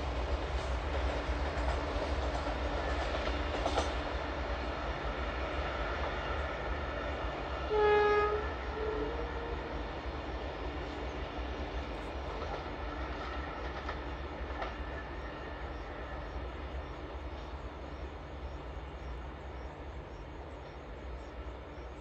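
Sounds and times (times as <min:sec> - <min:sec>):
diesel locomotive rumble: 0:00.0 - 0:22.0
locomotive horn blast: 0:07.6 - 0:09.7.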